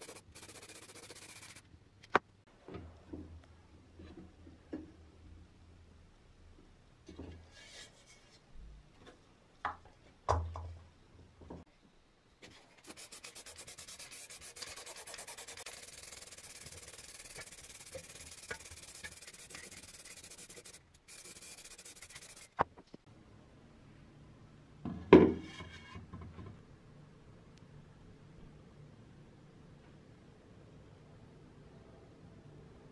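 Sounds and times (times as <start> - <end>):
spray paint can hissing: 0.0 - 1.6, 12.8 - 22.6.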